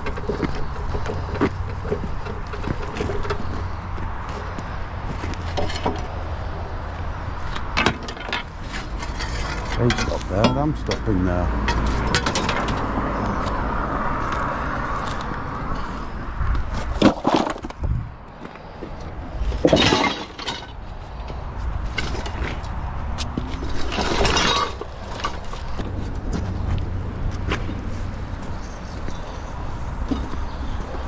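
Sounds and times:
scrap metal clattering and crashing: 7.8s - 12.8s, 16.8s - 17.8s, 19.5s - 20.8s, 23.4s - 25.8s.

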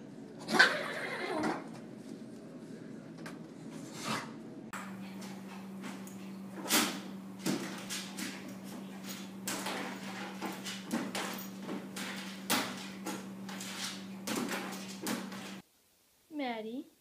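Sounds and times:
steady low hum: 4.7s - 15.6s
dog paws on tile floor: 4.8s - 15.6s.

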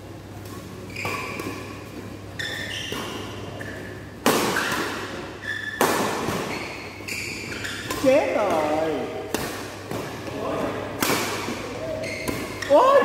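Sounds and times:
shoes squeaking on court: 0.4s - 10.2s, 11.4s - 13.0s
rackets hitting shuttlecock: 2.5s - 6.6s, 7.4s - 12.8s.

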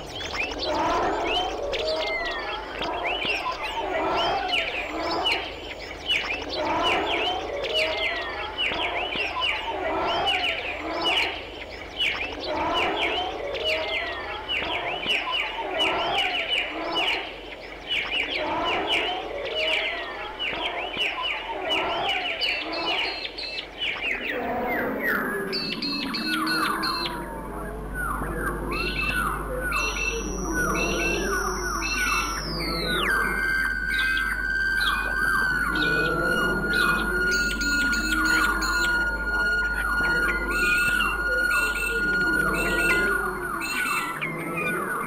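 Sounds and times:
dense bird-like chirping: 0.0s - 45.0s
steady high tone: 24.2s - 45.0s.

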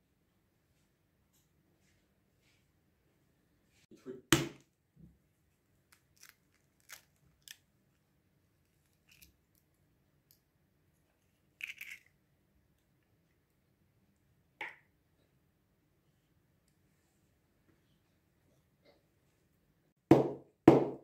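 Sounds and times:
eggshell crackling: 5.9s - 7.7s, 11.4s - 12.2s.

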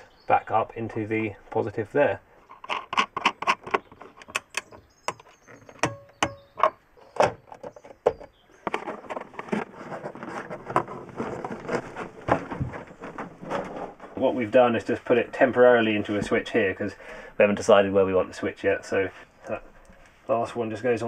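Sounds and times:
cable clicks and knocks: 2.5s - 14.2s
wires rustling and scraping: 8.6s - 16.7s.

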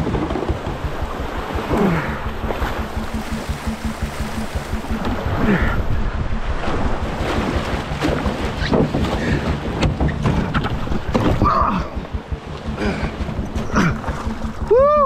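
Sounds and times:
canoe knocks: 0.0s - 2.8s, 7.2s - 14.2s
paddle strokes splashing: 0.0s - 14.8s.

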